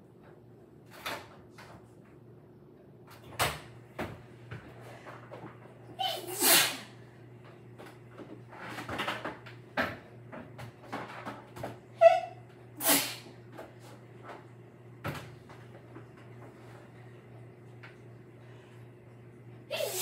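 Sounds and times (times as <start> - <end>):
woman sneezing: 6.0 - 6.9, 12.8 - 13.3, 19.7 - 20.0.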